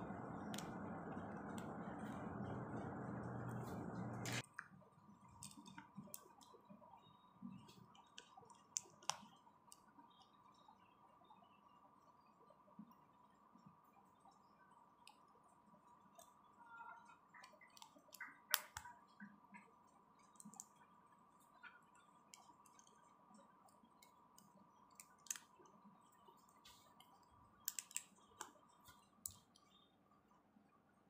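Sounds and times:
plastic bricks clicking together: 27.6 - 28.5.

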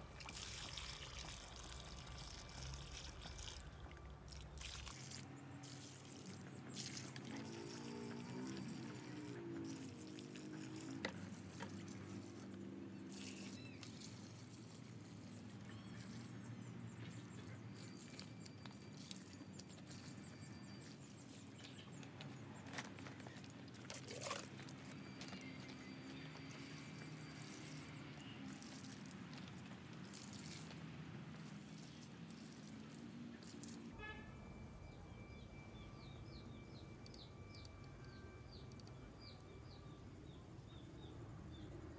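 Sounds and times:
water poured onto soil: 0.0 - 16.4, 17.4 - 21.6, 23.8 - 33.8
water trickling: 0.0 - 22.1, 23.4 - 33.9.

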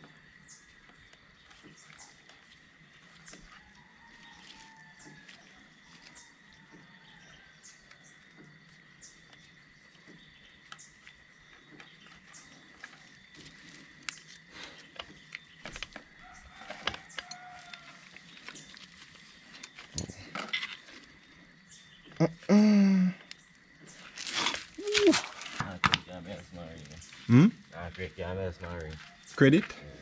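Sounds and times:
clicks and knocks on motorcycle chain: 19.9 - 20.8.

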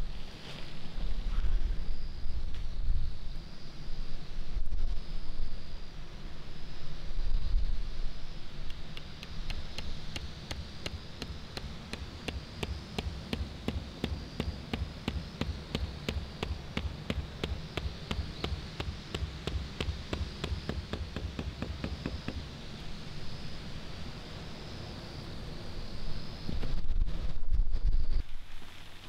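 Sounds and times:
hammer tapping tent stake: 8.7 - 22.5.

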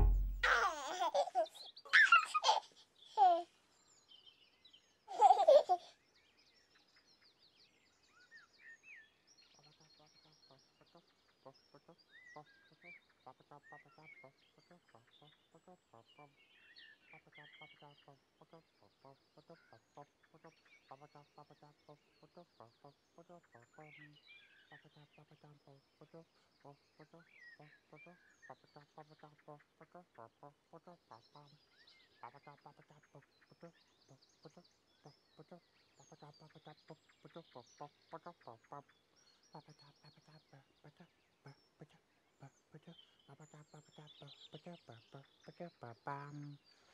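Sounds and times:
short low calls: 0.0 - 0.6
baby giggling: 0.0 - 3.5, 5.1 - 5.9
faint birdsong: 0.0 - 46.9.

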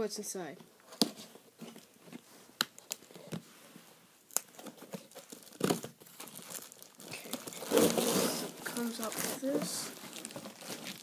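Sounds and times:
packaging crinkling and tearing: 2.7 - 3.4, 4.3 - 11.0.

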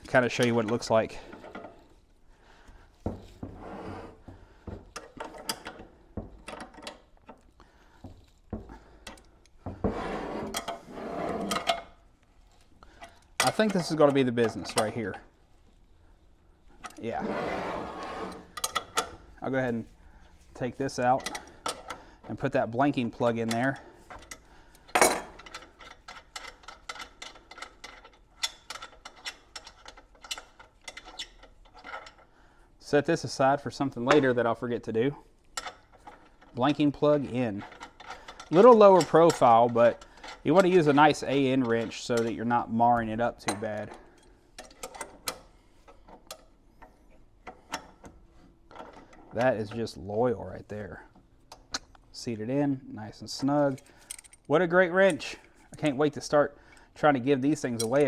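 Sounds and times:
scraping on wooden workbench: 3.1 - 4.4, 9.7 - 11.5, 17.2 - 18.5
small metallic ticks and clicks: 23.3 - 32.3, 53.6 - 55.9.

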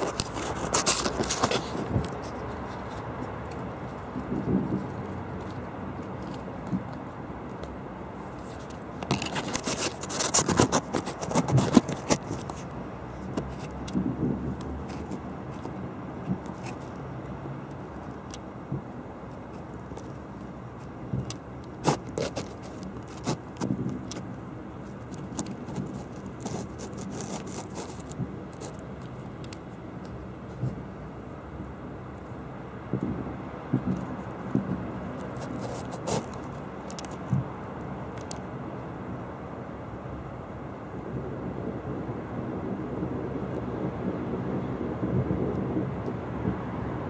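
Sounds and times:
fireworks cracking and popping: 0.0 - 5.4, 8.3 - 12.7, 18.2 - 30.9
steady background noise: 0.0 - 47.0.

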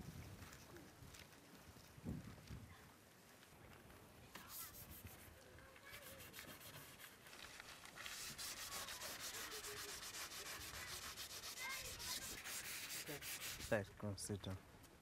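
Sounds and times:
eraser rubbing on board: 4.4 - 5.3, 5.9 - 7.1, 8.0 - 13.8.

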